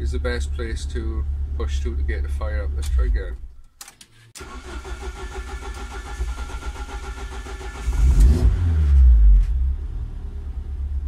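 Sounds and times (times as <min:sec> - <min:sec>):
engine cranking on starter: 0:04.4 - 0:08.6
car engine revving and idling: 0:05.0 - 0:11.0.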